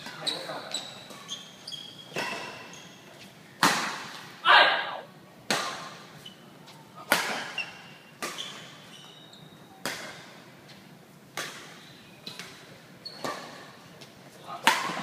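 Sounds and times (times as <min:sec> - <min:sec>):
shoes squeaking on court: 0:00.0 - 0:03.6, 0:06.1 - 0:11.0, 0:11.6 - 0:15.0
racket striking shuttlecock: 0:14.6 - 0:15.0.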